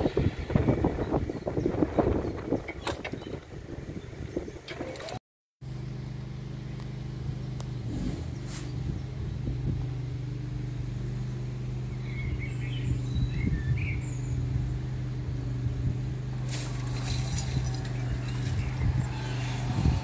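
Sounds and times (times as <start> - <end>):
low engine hum: 5.6 - 20.0
birds chirping: 7.3 - 15.2, 16.6 - 20.0.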